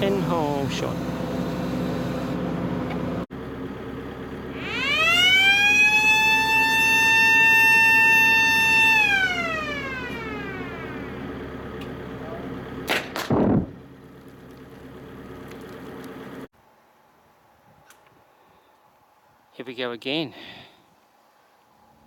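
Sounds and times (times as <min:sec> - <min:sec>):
steady engine hum: 0:00.0 - 0:16.5
warning siren wailing: 0:04.4 - 0:12.8.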